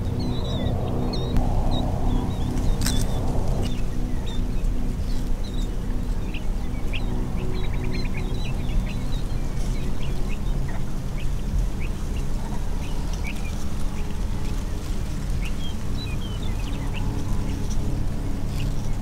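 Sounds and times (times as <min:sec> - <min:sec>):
flock of birds calling: 0:00.0 - 0:19.0
low rumble: 0:00.0 - 0:19.0.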